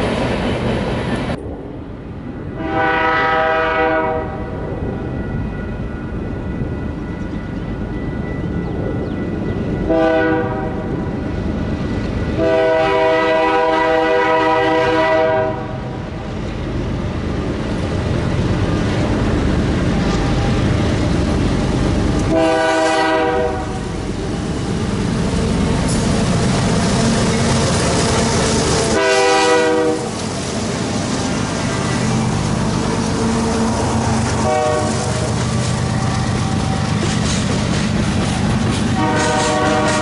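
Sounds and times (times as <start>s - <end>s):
locomotive engines rumbling: 0.0s - 40.0s
wheels rumbling on rails: 0.0s - 40.0s
train horn blasts: 2.5s - 4.6s, 9.8s - 11.0s, 12.4s - 16.0s, 22.2s - 24.0s, 25.4s - 30.3s, 33.2s - 35.3s, 39.0s - 40.0s.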